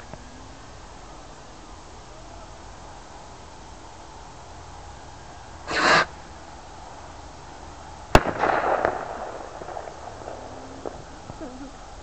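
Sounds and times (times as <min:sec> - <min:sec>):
firework rocket hiss: 0:05.6 - 0:06.2
firework bang with crackling tail: 0:08.1 - 0:11.4.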